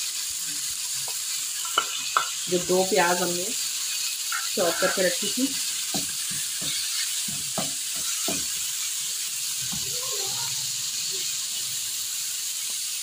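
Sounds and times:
meat sizzling in a frying pan: 0:00.0 - 0:13.0
wooden spoon knocking on pan: 0:01.6 - 0:02.4, 0:05.9 - 0:08.6.

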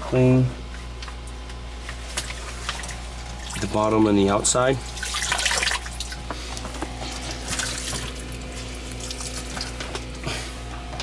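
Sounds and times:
steady low hum: 0:00.0 - 0:11.0
water splashing and trickling: 0:01.2 - 0:06.3, 0:07.0 - 0:09.9.

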